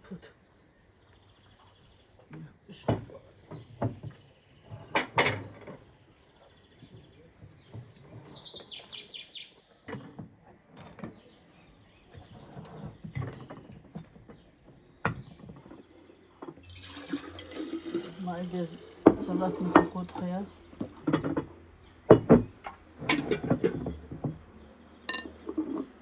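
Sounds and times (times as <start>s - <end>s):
small bird chirping: 6.0s - 9.9s
tongs and plates clinking: 25.1s - 25.9s.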